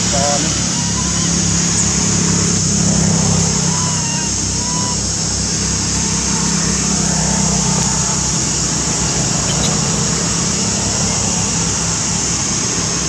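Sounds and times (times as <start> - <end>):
high hiss: 0.0 - 13.0.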